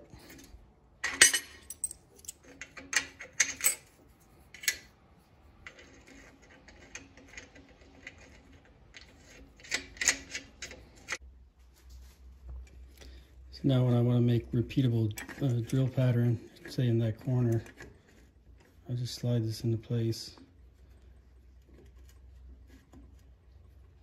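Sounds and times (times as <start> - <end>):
metal parts clinking: 0.3 - 4.9.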